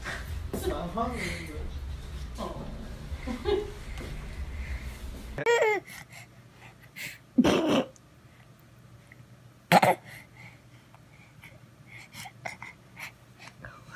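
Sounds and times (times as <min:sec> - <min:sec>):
baby coughing and gagging: 0:05.4 - 0:05.9, 0:07.4 - 0:08.0, 0:09.7 - 0:10.2.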